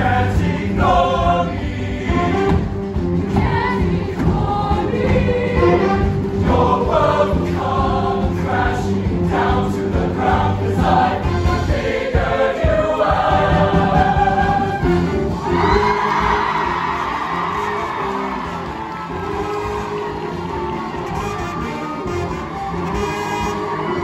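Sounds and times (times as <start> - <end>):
choir singing: 0.0 - 18.5
instrumental accompaniment with bass: 0.0 - 24.0.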